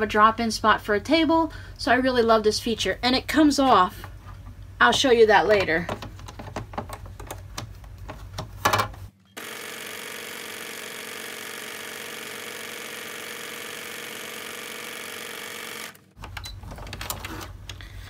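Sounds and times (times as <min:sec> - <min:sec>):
sewing machine running: 0:09.4 - 0:16.1.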